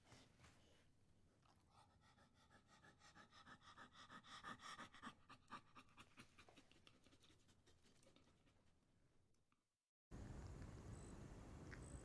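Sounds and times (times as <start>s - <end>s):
dog panting quickly: 1.7s - 8.2s.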